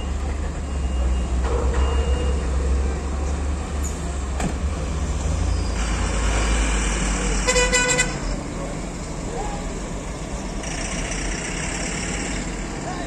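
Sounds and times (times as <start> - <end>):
diesel truck engines rumbling: 0.0 - 13.0
vehicle horn blast: 7.4 - 8.2.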